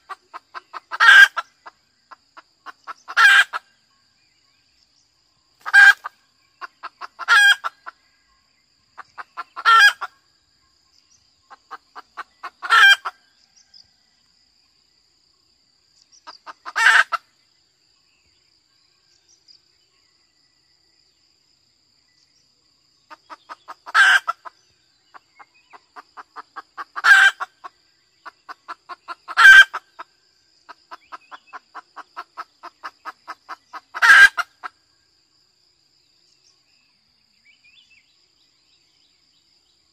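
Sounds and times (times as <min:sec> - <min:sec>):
hen clucking and cackling: 0:00.0 - 0:03.7, 0:05.6 - 0:08.0, 0:09.0 - 0:10.2, 0:11.5 - 0:13.2, 0:16.2 - 0:17.3, 0:23.1 - 0:30.1, 0:30.7 - 0:34.8.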